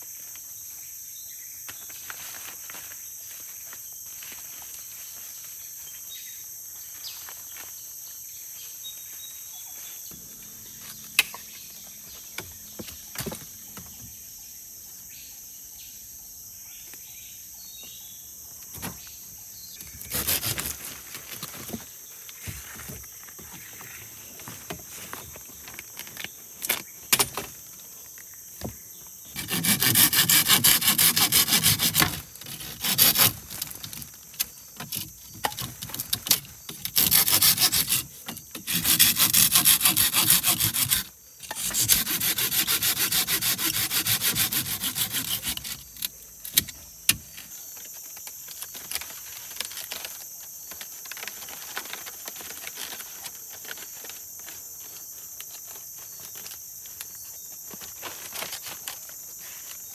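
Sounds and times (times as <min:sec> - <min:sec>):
high insect drone: 0:00.0 - 0:59.9
hand saw cutting wood: 0:20.0 - 0:20.9, 0:29.3 - 0:34.0, 0:34.8 - 0:46.0.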